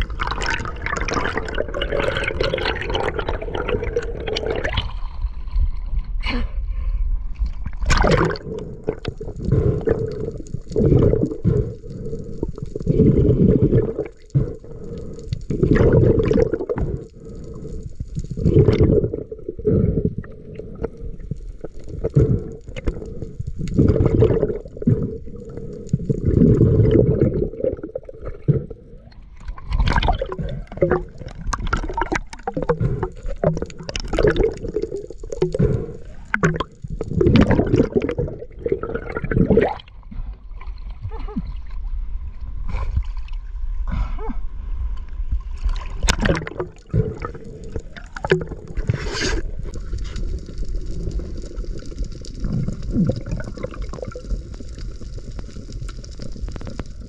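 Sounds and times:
water gurgling and splashing: 0.0s - 6.1s, 7.4s - 43.8s, 45.2s - 57.0s
low underwater rumble: 0.0s - 57.0s.

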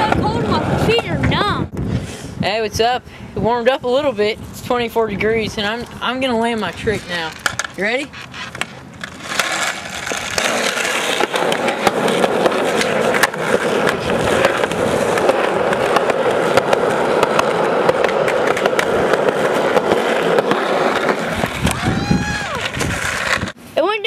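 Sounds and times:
skateboard wheels rolling on asphalt: 0.0s - 1.9s, 3.6s - 23.6s
sharp clicks of wheels over cracks: 6.6s - 23.6s.

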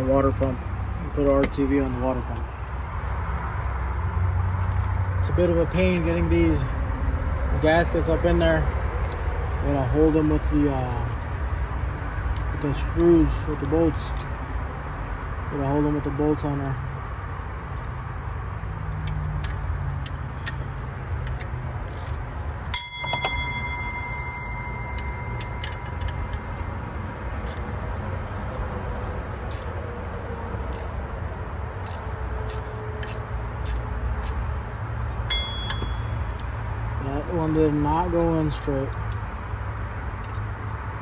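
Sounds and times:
socket ratchet clicking: 18.8s - 28.4s, 29.4s - 29.8s, 30.6s - 31.0s, 31.7s - 36.7s, 38.9s - 40.6s
metal clink ringing: 22.7s - 26.8s, 35.2s - 36.5s.

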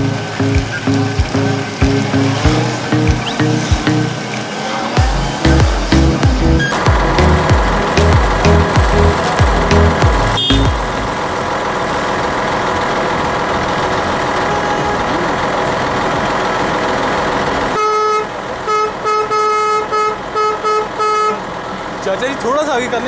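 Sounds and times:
vehicle engine idling: 0.0s - 23.0s
vehicle horn short blasts: 10.4s - 10.8s, 17.8s - 21.4s.

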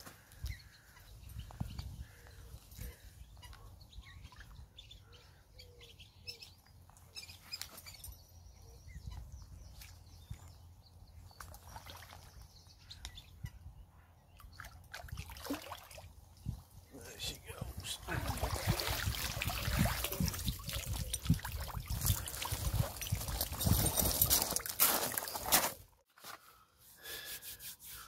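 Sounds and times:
small birds chirping: 0.2s - 15.0s, 19.3s - 24.1s
lake water sloshing: 11.4s - 12.5s, 14.4s - 16.1s, 17.8s - 23.6s.

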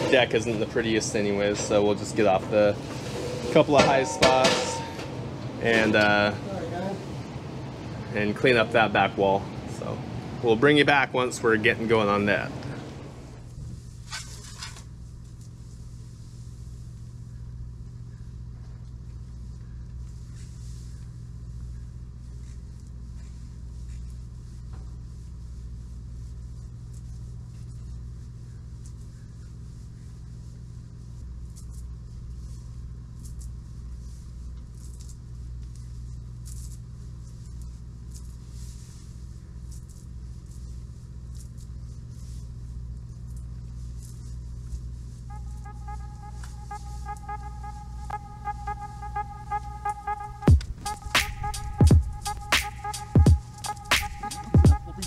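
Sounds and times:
low mechanical hum: 0.0s - 55.0s
faint scratchy strokes: 19.3s - 55.0s.

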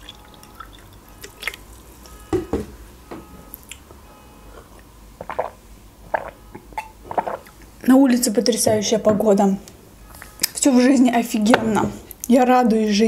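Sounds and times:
person gulping drink: 0.0s - 2.2s, 4.6s - 7.7s
drink pouring into glass: 0.0s - 2.5s
drips: 0.0s - 7.7s
short knocks: 2.2s - 3.3s.

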